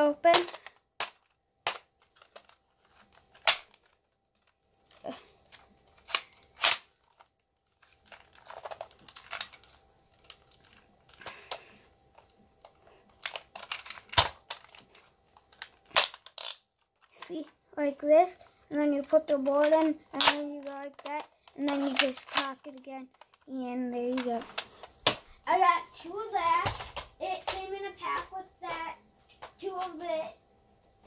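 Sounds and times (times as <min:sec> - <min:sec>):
toy blaster plastic clicks and rattles: 0:00.2 - 0:04.5, 0:05.5 - 0:17.5, 0:18.7 - 0:25.2.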